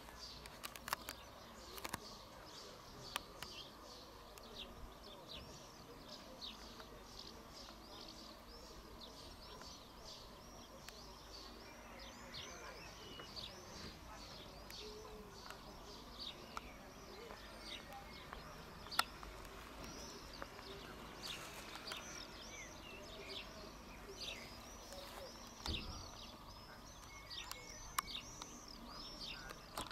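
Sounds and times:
faint background noise: 0.0 - 29.9
small birds chirping: 0.0 - 29.9
sharp clicks: 0.4 - 2.1, 17.3 - 22.4.

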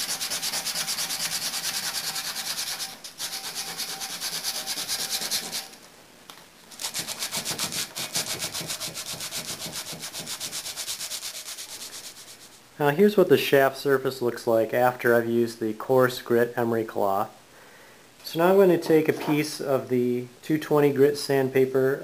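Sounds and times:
emery cloth rubbing metal shaft: 0.0 - 5.8.

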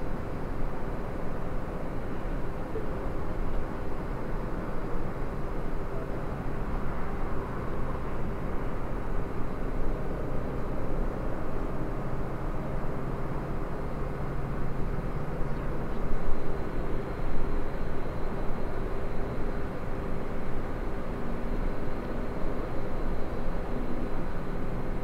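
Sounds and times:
faint constant hum: 0.0 - 25.0.

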